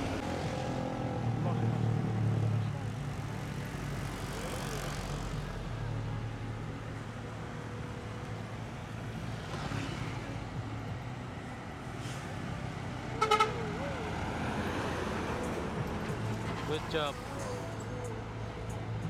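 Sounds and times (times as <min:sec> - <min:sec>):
bus diesel engine passing: 0:00.0 - 0:19.0
traffic: 0:00.0 - 0:19.0
loud horn blasts: 0:13.2 - 0:13.7.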